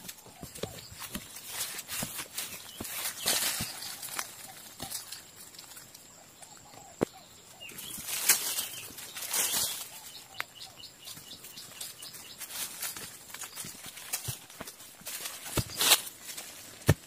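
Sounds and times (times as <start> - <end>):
hands rustling through leaves: 0.0 - 6.1, 7.6 - 17.0
twigs snapping: 0.0 - 6.1, 7.9 - 10.6, 12.4 - 17.0
scraping loose soil: 12.2 - 17.0.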